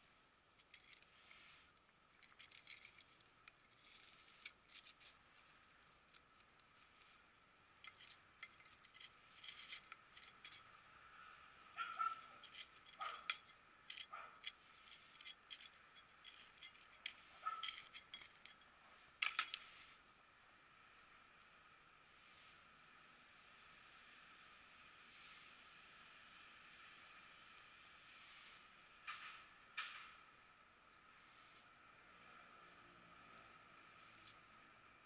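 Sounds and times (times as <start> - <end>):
metal scoop scraping soil: 2.2 - 5.2, 7.8 - 10.6, 12.1 - 18.6.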